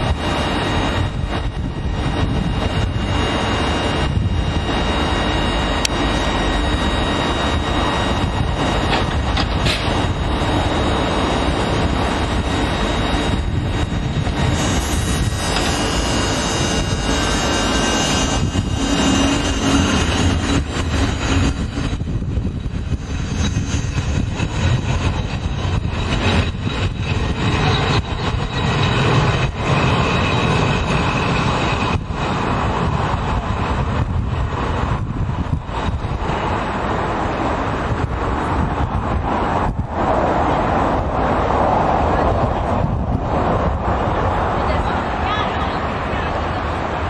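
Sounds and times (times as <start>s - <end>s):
thin whining tones: 0.0s - 32.9s
electric train pulling out: 0.0s - 44.7s
wind rumble on microphone: 0.0s - 47.0s.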